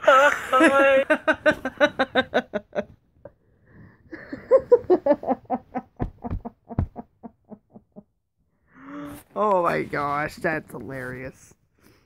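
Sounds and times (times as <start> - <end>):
hearty laughter: 0.4 - 3.4, 4.1 - 8.2.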